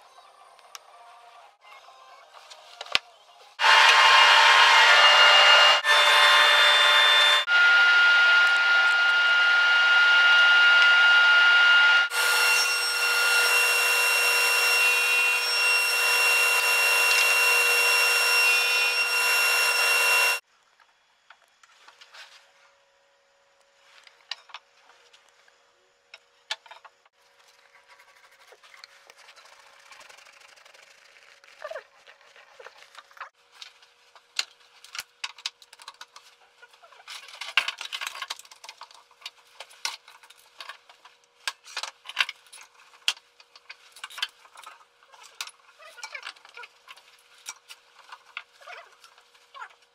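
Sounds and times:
table saw whine: 0:03.6 - 0:20.4.

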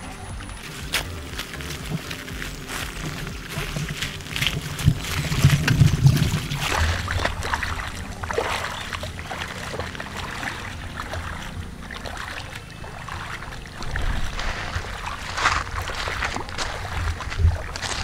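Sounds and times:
low rumble: 0:00.0 - 0:18.0
water splashing and sloshing: 0:00.0 - 0:18.0.

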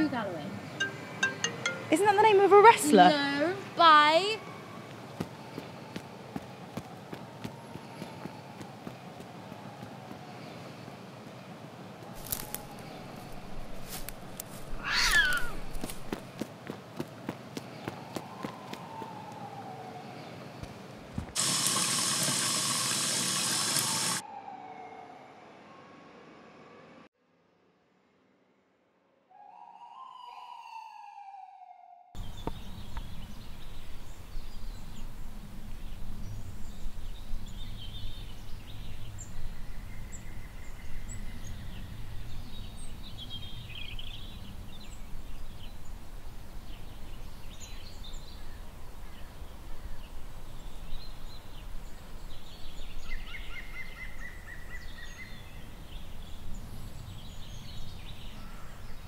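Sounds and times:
bird trilling calls: 0:14.7 - 0:15.9
falling whistle-like tone: 0:23.8 - 0:26.2, 0:29.3 - 0:32.2.

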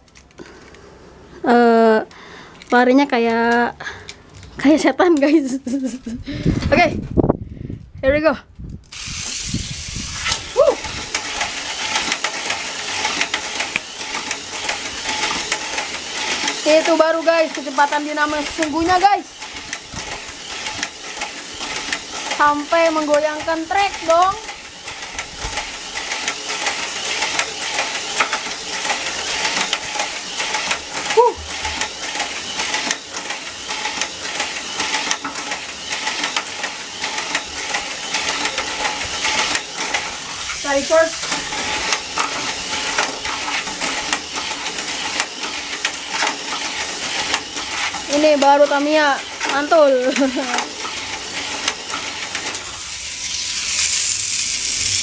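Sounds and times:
toy car clattering on track: 0:08.8 - 0:55.0
toy car motor whirring: 0:08.8 - 0:55.0.

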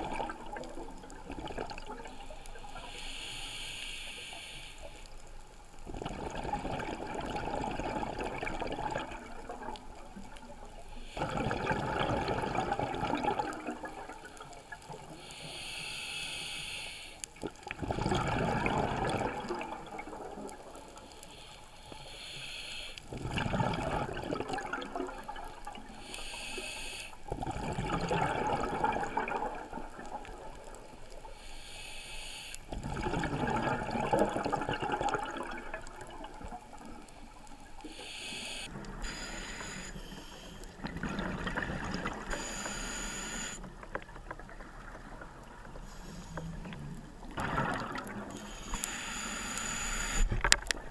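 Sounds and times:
regulator inhale hiss: 0:02.6 - 0:05.3, 0:10.8 - 0:11.3, 0:15.1 - 0:17.4, 0:20.9 - 0:23.1, 0:25.9 - 0:27.3, 0:31.1 - 0:32.7, 0:37.7 - 0:40.8, 0:42.3 - 0:43.6, 0:45.8 - 0:46.8, 0:48.3 - 0:50.4
exhaust bubbling underwater: 0:05.8 - 0:09.9, 0:11.2 - 0:14.4, 0:17.7 - 0:20.8, 0:23.1 - 0:25.8, 0:27.4 - 0:30.7, 0:32.7 - 0:36.8, 0:40.6 - 0:42.4, 0:46.4 - 0:48.5.

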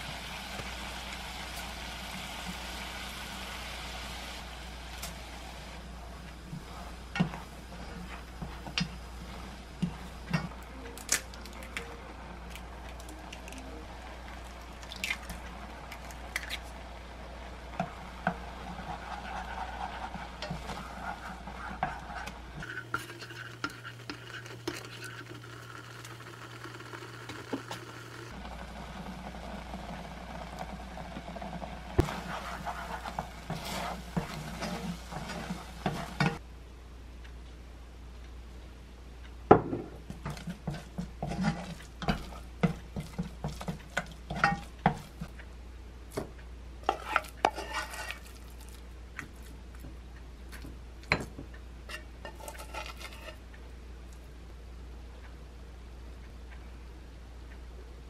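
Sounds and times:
steady low hum: 0:00.0 - 0:25.4, 0:27.8 - 0:58.0
spatula scraping porridge in saucepan: 0:17.8 - 0:25.7, 0:32.0 - 0:36.4, 0:40.1 - 0:45.3, 0:46.8 - 0:48.8, 0:51.9 - 0:53.4.

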